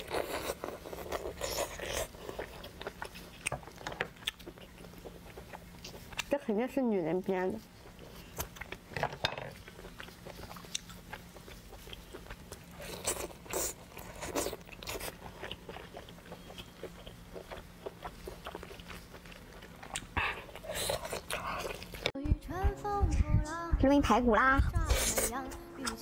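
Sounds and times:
faint steady hum: 0:00.0 - 0:26.0
wet chewing and lip smacks: 0:09.6 - 0:22.2.

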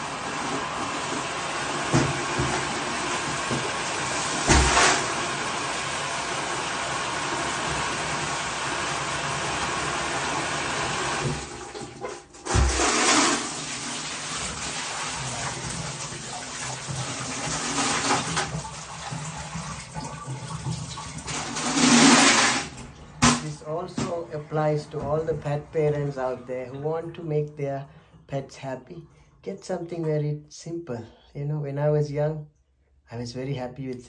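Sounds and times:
water running from faucet: 0:00.0 - 0:26.8.

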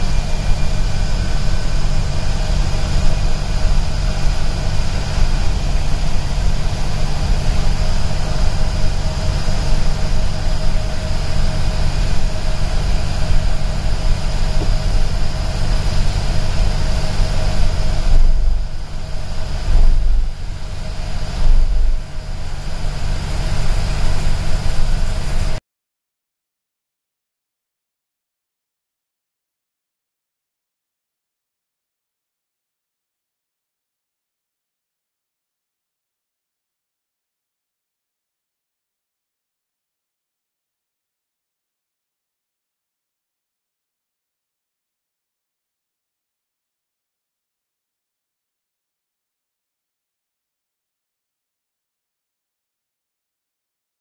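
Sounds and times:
bus engine and road rumble: 0:00.0 - 0:25.6
faint steady whine: 0:00.0 - 0:25.6
tyres hissing on wet road: 0:00.0 - 0:25.6.

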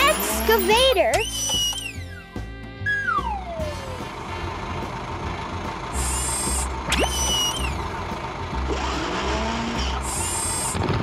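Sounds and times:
background music with bass pulse: 0:00.0 - 0:11.0
rising whistle-like tone: 0:02.9 - 0:03.7, 0:06.0 - 0:07.8.

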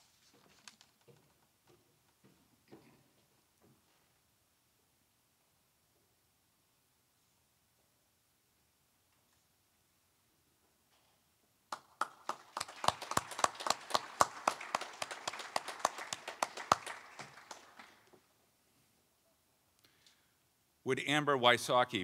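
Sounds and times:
small group clapping: 0:11.7 - 0:18.2.

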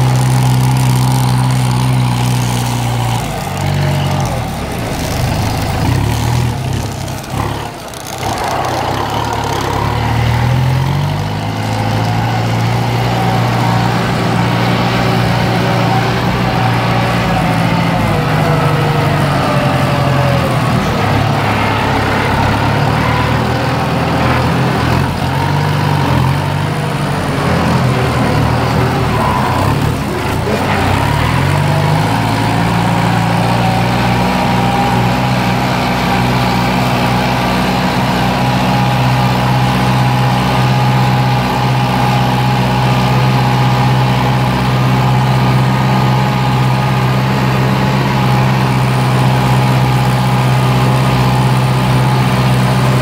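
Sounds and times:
gear and wheel rattle: 0:02.6 - 0:09.8.

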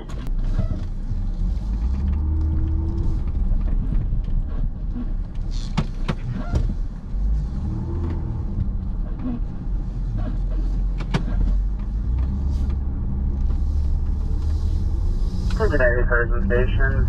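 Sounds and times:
vehicle cabin road rumble: 0:00.0 - 0:17.0.

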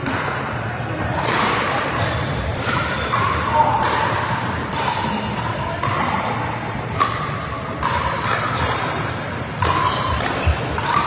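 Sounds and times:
sports hall hubbub: 0:00.0 - 0:11.0.

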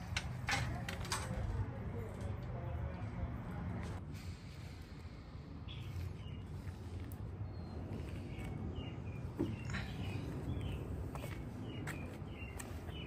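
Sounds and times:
low outdoor rumble: 0:00.0 - 0:13.0
small birds chirping: 0:04.4 - 0:13.0.

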